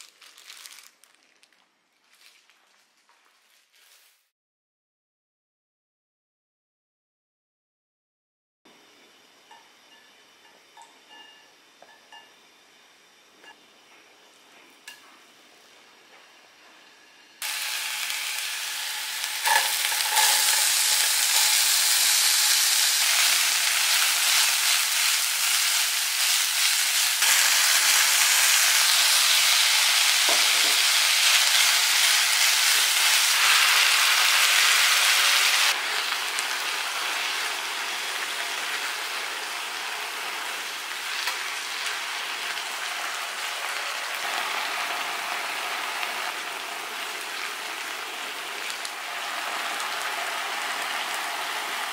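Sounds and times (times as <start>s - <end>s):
vegetables sizzling in frying pan: 0.0s - 1.5s, 17.4s - 51.9s.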